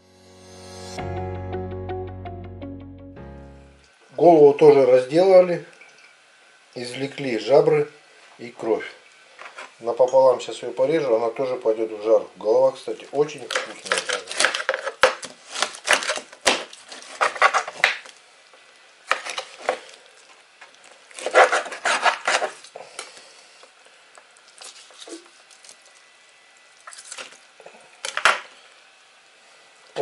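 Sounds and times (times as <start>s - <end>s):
knife crunching through bone: 13.4s - 18.1s, 21.1s - 22.6s.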